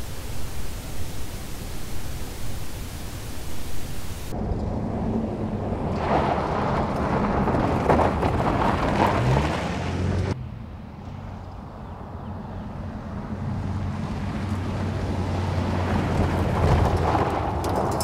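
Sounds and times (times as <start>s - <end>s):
steady hiss: 0.0s - 4.4s
tyres on gravel: 0.0s - 10.4s, 15.8s - 18.0s.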